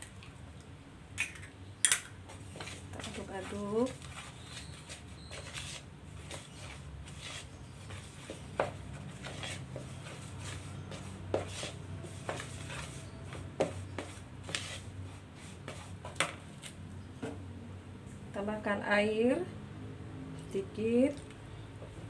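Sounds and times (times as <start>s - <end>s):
spatula scraping plastic bowl: 2.6s - 14.9s.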